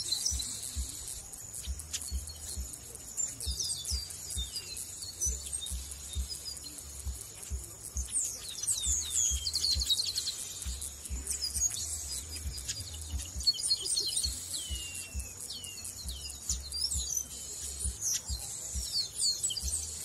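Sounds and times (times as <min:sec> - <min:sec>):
birds singing and calling: 0:00.0 - 0:20.0.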